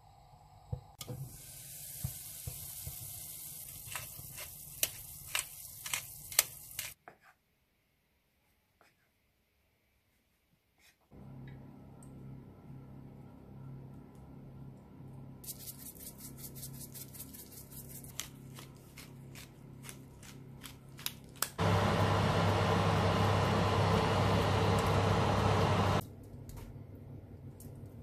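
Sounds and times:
oven fan rushing: 21.6 - 26.0.

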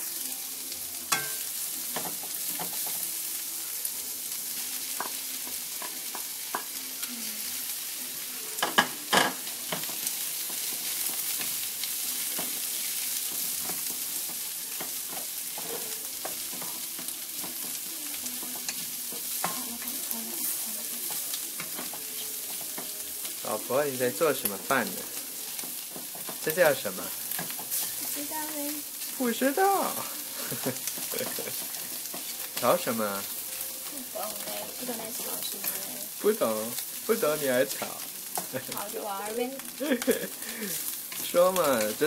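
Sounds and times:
stir-fry sizzling in wok: 0.0 - 42.0
spatula knocking and scraping wok: 24.8 - 28.5.

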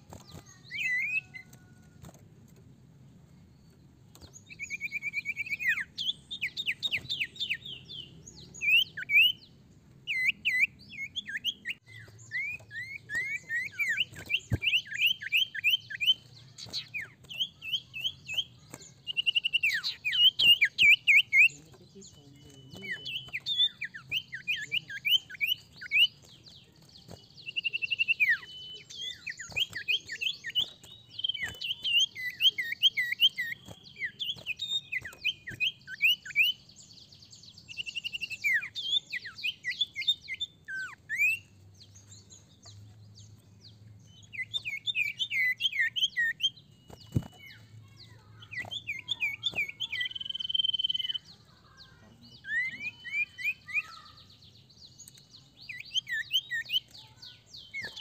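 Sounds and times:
bird chirping and whistling: 0.2 - 1.6, 4.4 - 9.4, 10.1 - 21.6, 22.4 - 26.2, 27.4 - 36.6, 37.6 - 41.5, 44.1 - 47.7, 48.4 - 51.3, 52.3 - 54.2, 55.6 - 58.0.

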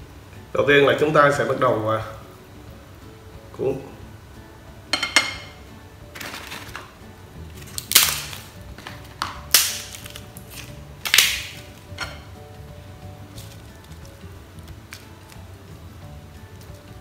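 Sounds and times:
rice paper crackling: 6.1 - 11.9, 13.2 - 17.0.

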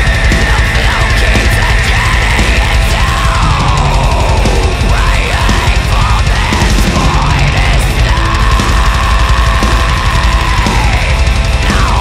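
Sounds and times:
heavy metal song: 0.0 - 12.0.

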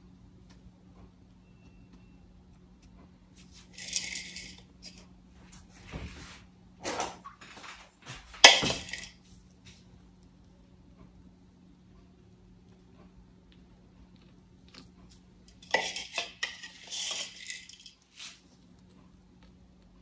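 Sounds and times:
faint low hum: 0.0 - 20.0
rustling and scraping by hand: 2.8 - 6.6, 14.8 - 19.1
sharp clatter: 15.5 - 18.0.

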